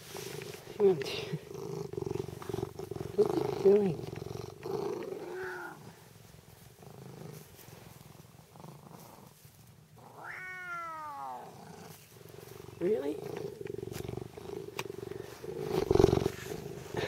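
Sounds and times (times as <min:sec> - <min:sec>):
cat purring: 0:00.0 - 0:17.0
cat meowing: 0:05.2 - 0:05.8, 0:10.0 - 0:11.5.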